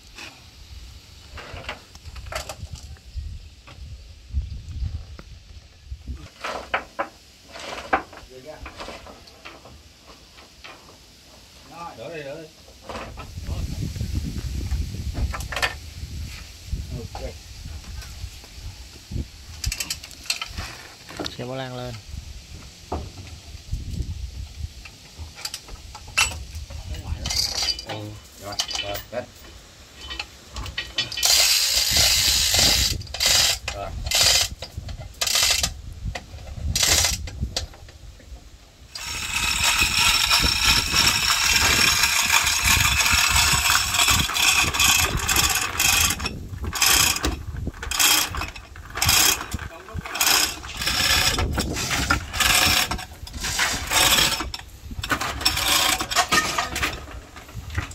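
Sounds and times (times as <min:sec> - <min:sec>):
hoist chain rattling: 0:19.6 - 0:20.9, 0:25.4 - 0:29.4, 0:30.0 - 0:35.7, 0:36.7 - 0:37.3, 0:38.9 - 0:57.9
ratchet clicking: 0:30.0 - 0:35.7, 0:36.8 - 0:37.3, 0:38.9 - 0:56.5.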